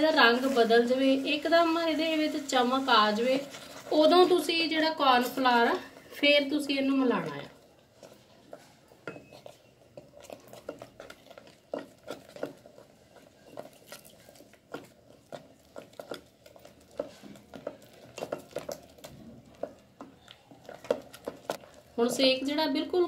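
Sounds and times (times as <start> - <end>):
spatula scraping steel pot: 7.2 - 21.8.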